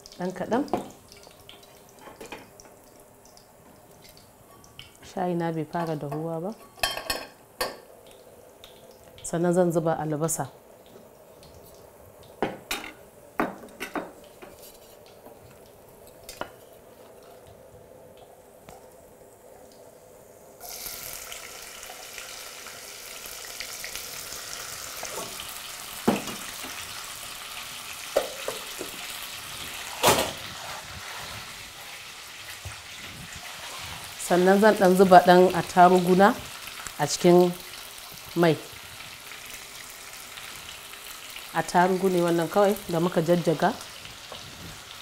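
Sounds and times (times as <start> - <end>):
onions sizzling in oil: 18.2 - 45.0.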